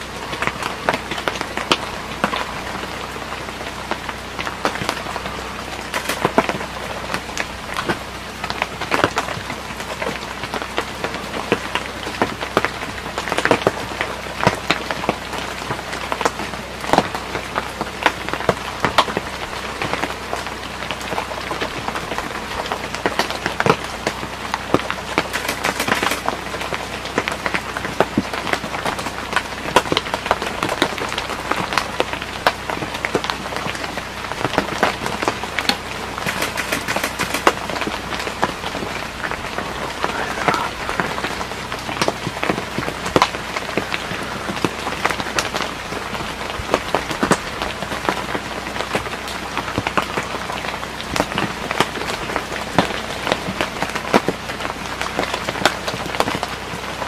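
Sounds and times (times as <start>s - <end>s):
rain-like pattering: 0.0s - 57.0s.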